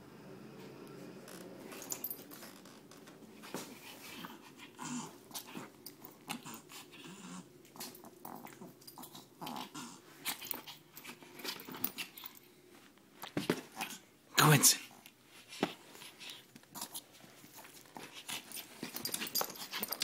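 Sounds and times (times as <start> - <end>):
small dog play-growling: 3.5 - 12.3, 13.4 - 14.0, 15.6 - 20.0.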